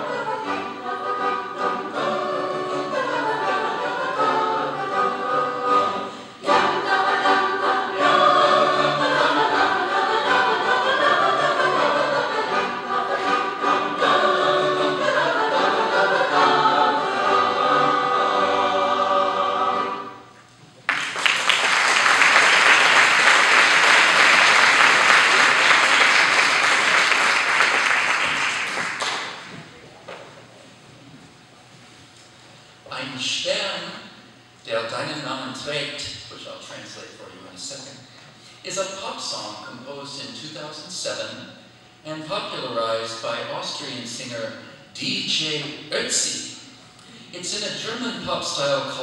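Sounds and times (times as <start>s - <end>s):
choir singing a cappella: 0.0s - 20.4s
audience applause: 20.9s - 29.7s.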